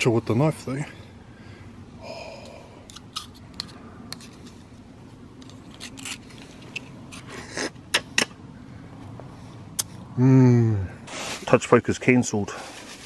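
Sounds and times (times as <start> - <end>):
knife scraping oyster shell: 2.8 - 4.6, 5.4 - 7.8.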